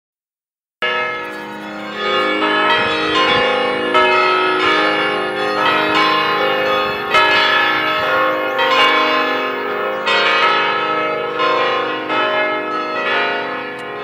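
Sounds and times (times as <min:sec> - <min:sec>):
church bells ringing: 0:00.8 - 0:14.0.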